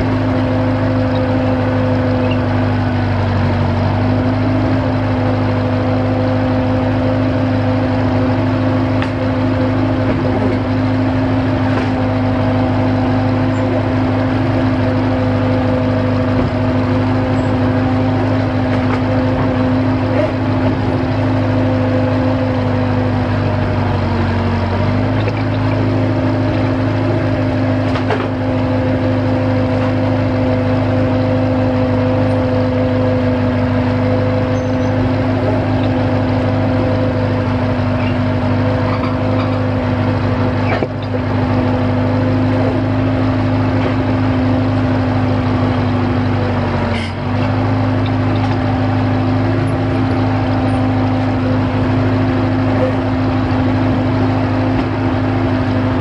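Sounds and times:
drill rig engine running: 0.0 - 56.0.

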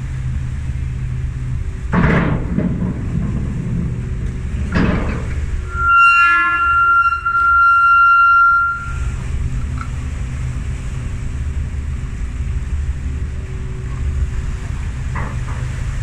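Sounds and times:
ferry engines rumbling: 0.0 - 16.0
high steady tone: 5.6 - 9.3.

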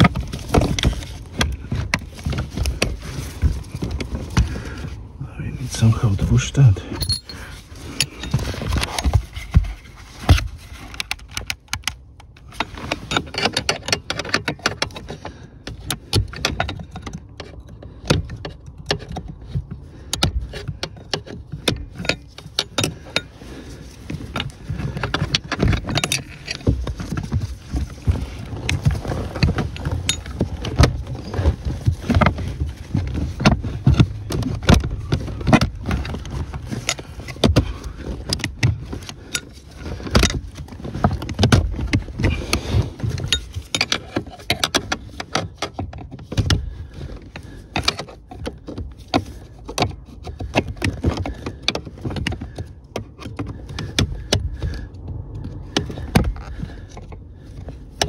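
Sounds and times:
plastic and metal parts knocking: 0.0 - 5.1, 6.6 - 58.0
tools clicking and tapping: 7.0 - 7.4.

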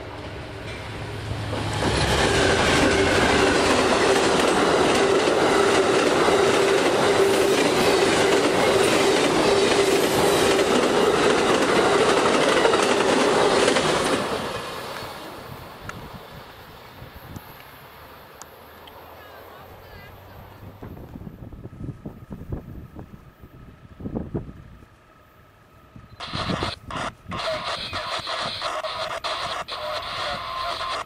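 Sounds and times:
train wheels rushing on rail: 0.0 - 25.4, 26.0 - 31.0.

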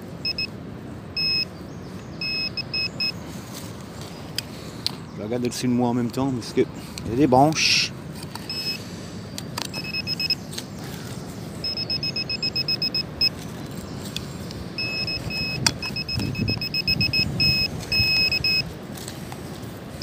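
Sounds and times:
metal detector beeping: 0.2 - 0.6, 1.2 - 1.5, 2.2 - 3.2, 8.4 - 8.8, 9.6 - 10.5, 11.6 - 13.5, 14.7 - 18.8
wind noise on microphone: 14.6 - 20.0.

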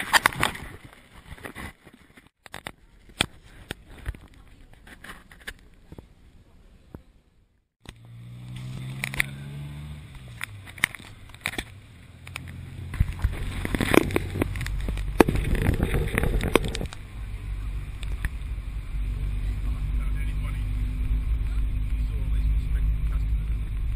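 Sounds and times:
road rumble: 2.2 - 23.9
small vehicle engine running: 7.8 - 23.9
wind on microphone: 12.9 - 18.8.

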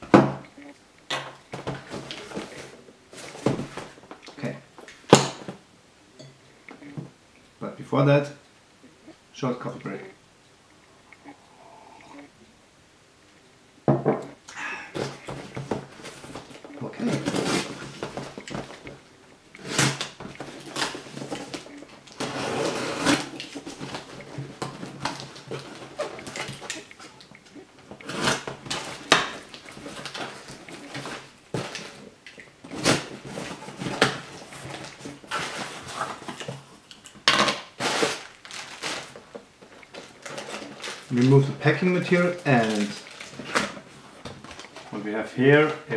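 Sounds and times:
cardboard tearing and rustling: 15.0 - 19.0, 19.6 - 26.8, 28.1 - 32.1, 32.7 - 36.6, 37.2 - 44.9.

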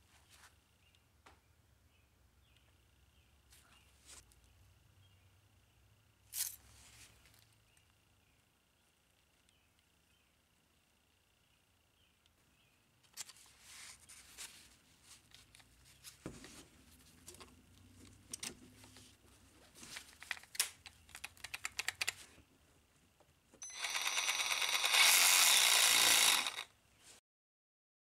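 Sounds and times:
reciprocating saw running: 23.6 - 26.7.

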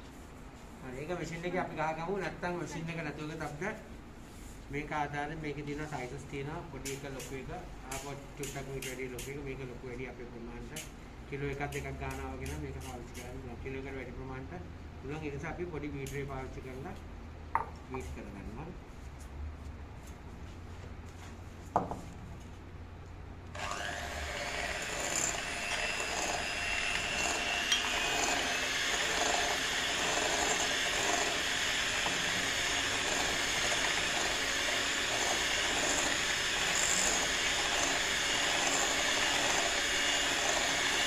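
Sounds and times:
electric hand mixer running: 23.6 - 41.0.

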